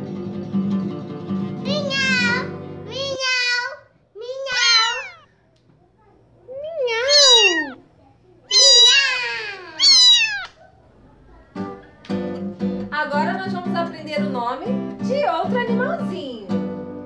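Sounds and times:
cat meowing: 0:04.4 - 0:05.3, 0:06.5 - 0:07.9, 0:08.5 - 0:10.6.

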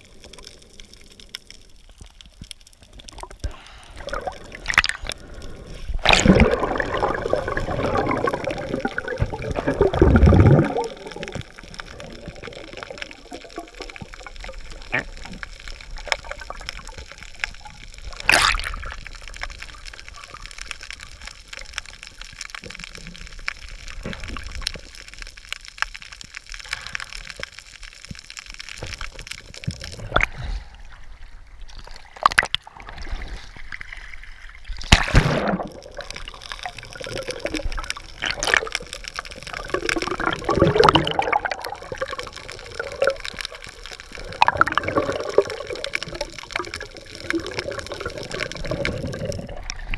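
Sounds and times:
sea water sloshing and gurgling: 0:00.0 - 0:49.9
rushing splash: 0:06.0 - 0:11.3.

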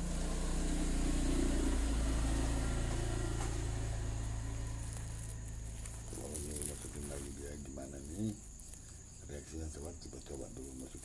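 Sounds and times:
vehicle engine passing: 0:00.0 - 0:08.4.

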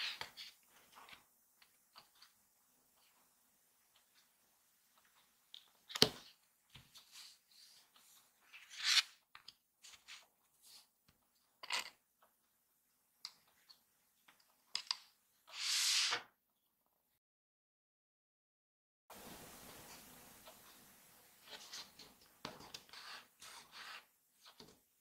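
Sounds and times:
paper sliding against paper: 0:15.5 - 0:16.3, 0:22.7 - 0:24.1.

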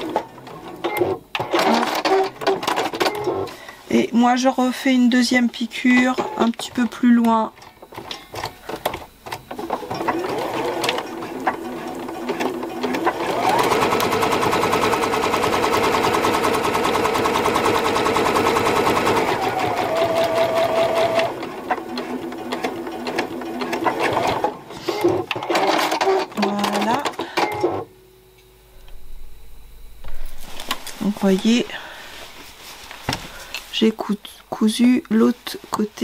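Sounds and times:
sewing machine stitching: 0:00.8 - 0:03.6, 0:07.9 - 0:27.6.

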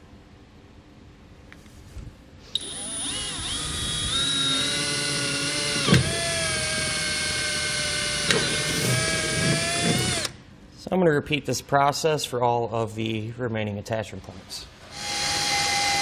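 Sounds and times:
cordless drill drilling steel: 0:02.5 - 0:10.4, 0:14.9 - 0:16.0.

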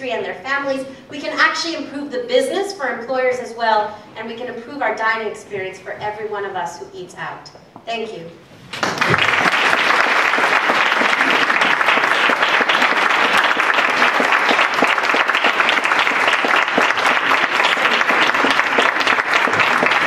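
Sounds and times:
audience applauding: 0:08.7 - 0:20.0.

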